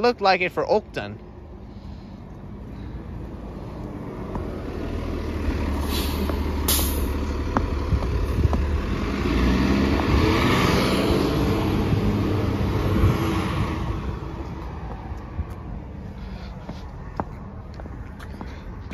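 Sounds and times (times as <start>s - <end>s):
road noise: 0.0s - 18.9s
bus engine droning: 0.6s - 18.9s
air brake hisses: 5.8s - 7.2s.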